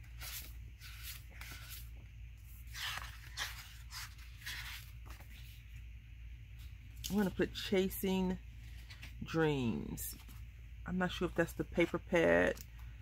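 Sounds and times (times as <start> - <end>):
paper pages flipping: 0.0 - 5.8.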